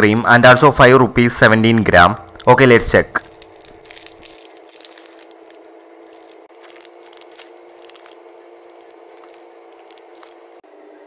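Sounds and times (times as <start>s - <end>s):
background hum: 0.0s - 11.0s
plastic wrapper crinkling: 2.2s - 10.6s.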